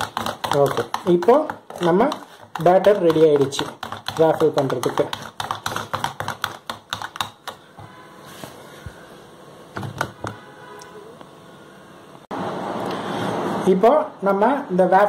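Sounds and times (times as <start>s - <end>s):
whisk clicking against bowl: 0.0s - 7.6s.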